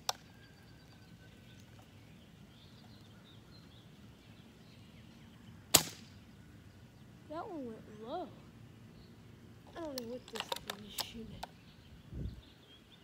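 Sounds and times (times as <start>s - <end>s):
faint bird chirps: 0.0s - 13.0s
airsoft rifle crack: 5.7s - 6.2s, 9.8s - 11.5s.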